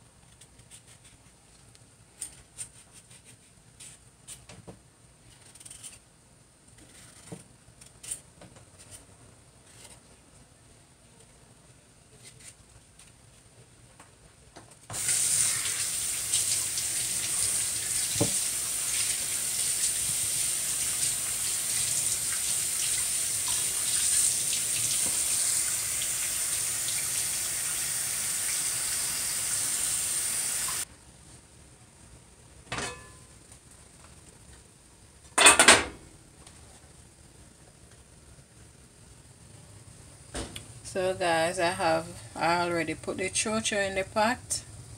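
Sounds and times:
faucet running into steel sink: 0:14.9 - 0:30.8.

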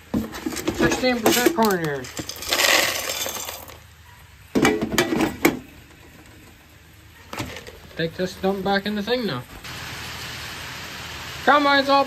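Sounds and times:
corn kernels rattling: 0:00.3 - 0:03.9.

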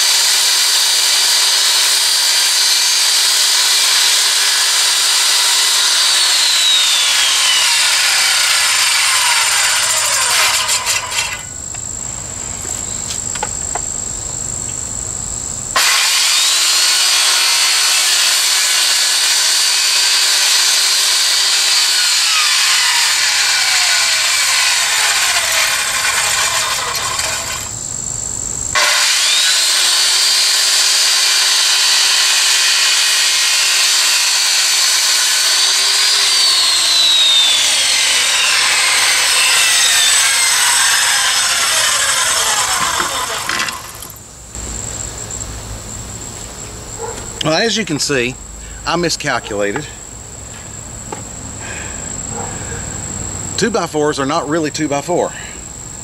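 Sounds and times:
circular saw cutting wood: 0:00.0 - 0:12.0, 0:15.7 - 0:27.8, 0:28.7 - 0:44.2.

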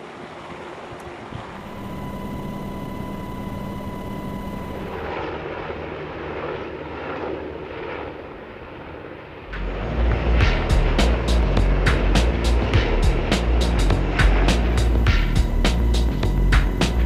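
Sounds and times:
high transmission whine: 0:00.0 - 0:05.8, 0:09.3 - 0:17.0
helicopter rotor and engine noise: 0:00.0 - 0:17.0
helicopters flying overhead: 0:00.0 - 0:17.0.

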